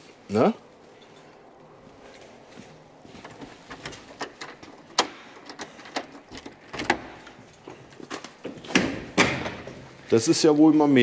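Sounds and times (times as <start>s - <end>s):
door lock and latch clicking: 3.7s - 7.4s.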